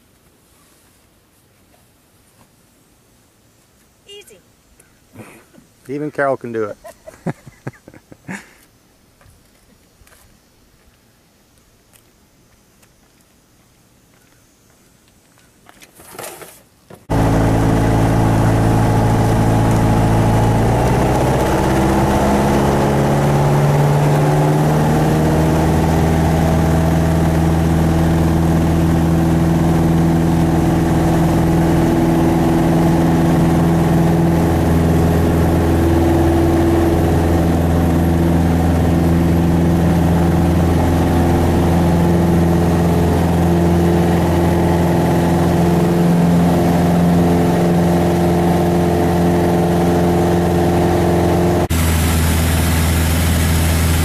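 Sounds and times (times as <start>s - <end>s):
airplane engine and propeller: 17.1s - 54.0s.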